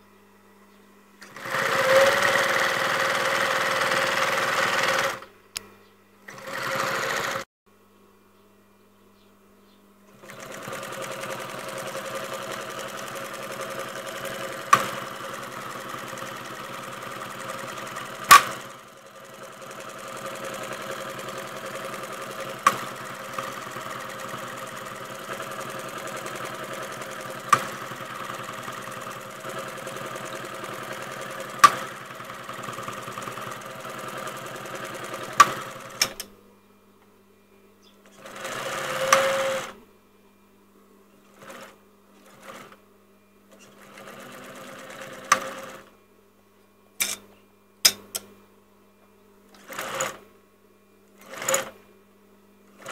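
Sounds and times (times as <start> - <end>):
sewing machine running: 1.2 - 5.3, 6.3 - 7.5, 10.2 - 36.2, 38.1 - 39.8, 41.3 - 42.8, 43.5 - 45.9, 49.6 - 50.2, 51.2 - 51.8.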